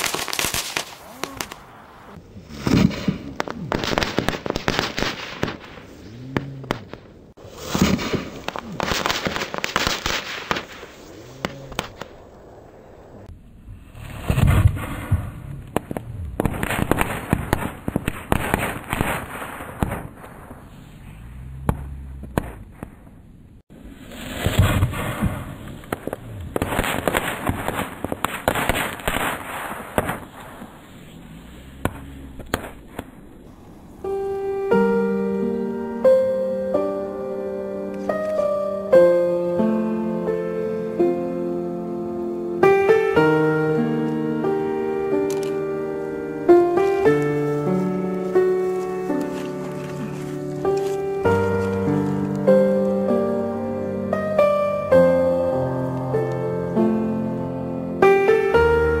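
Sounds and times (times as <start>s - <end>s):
rifle and machine-gun fire: 2.6s - 5.9s, 7.7s - 12.2s, 14.2s - 20.7s, 24.4s - 30.9s.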